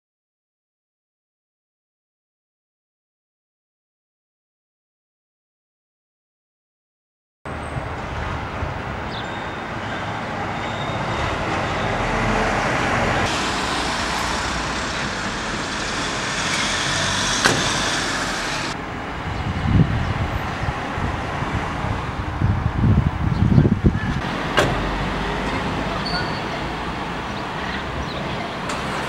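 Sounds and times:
road traffic passing: 0:07.5 - 0:29.0
low bumps: 0:13.0 - 0:18.8.

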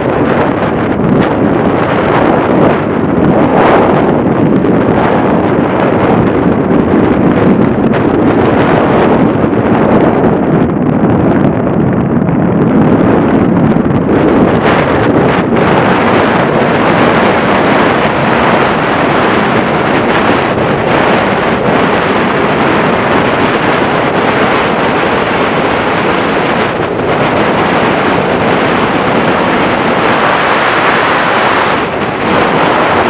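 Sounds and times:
wind rushing over microphone: 0:00.0 - 0:33.0.

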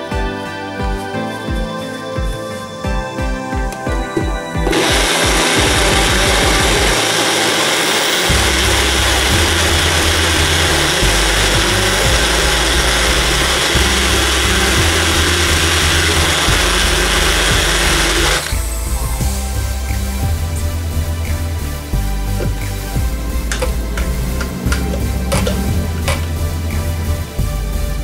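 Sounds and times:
blender motor whirring: 0:04.7 - 0:20.4.

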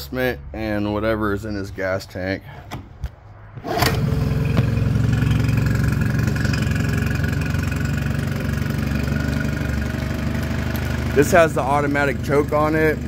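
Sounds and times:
outboard motor idling: 0:03.6 - 0:13.0.

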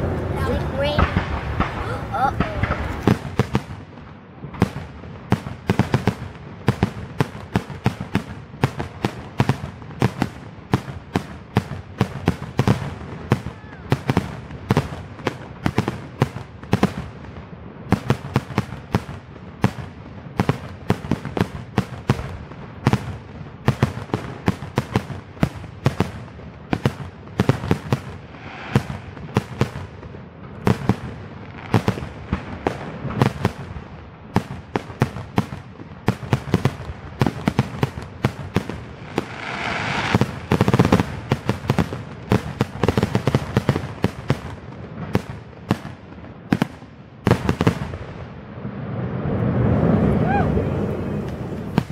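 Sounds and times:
loud rush of noise: 0:00.0 - 0:03.0, 0:28.2 - 0:29.3, 0:38.9 - 0:40.6, 0:48.6 - 0:51.9
fireworks bursting: 0:00.0 - 0:51.9.

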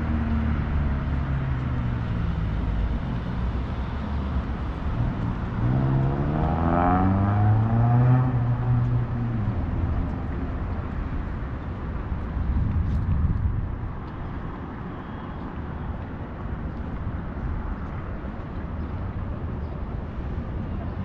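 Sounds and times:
passing vehicle engine hum: 0:00.0 - 0:15.0
steady traffic noise: 0:00.0 - 0:21.0.

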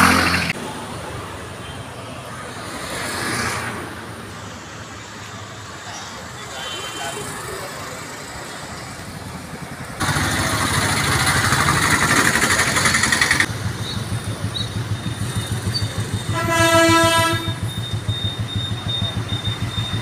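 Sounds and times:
vehicle horn blaring: 0:16.1 - 0:18.0.

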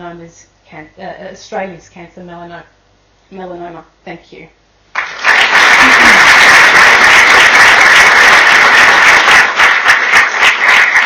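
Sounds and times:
audience applauding: 0:04.9 - 0:11.0.

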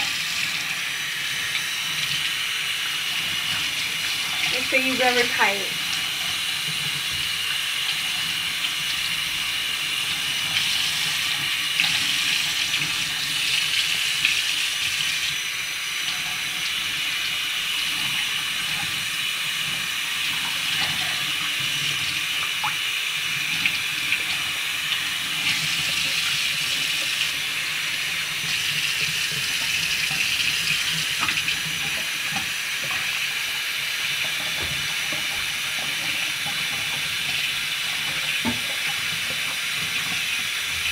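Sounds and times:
tap running into steel sink: 0:34.2 - 0:40.2.

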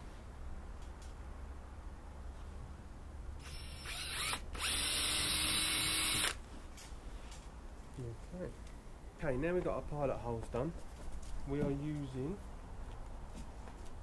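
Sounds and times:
cordless drill drilling: 0:03.4 - 0:06.4.

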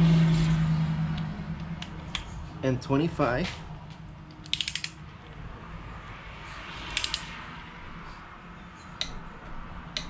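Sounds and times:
torque wrench ratchet clicking: 0:04.4 - 0:05.0, 0:06.9 - 0:07.3.

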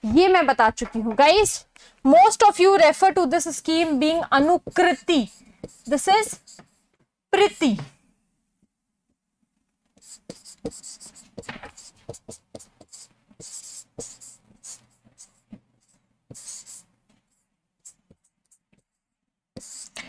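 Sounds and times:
marker writing on whiteboard: 0:00.0 - 0:01.6, 0:03.6 - 0:06.7, 0:10.0 - 0:16.9, 0:17.8 - 0:18.9, 0:19.6 - 0:20.0.

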